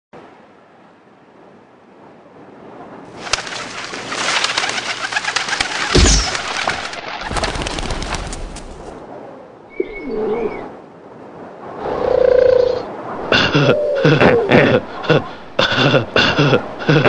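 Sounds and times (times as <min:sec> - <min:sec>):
pigeons flapping wings: 0:03.1 - 0:09.0.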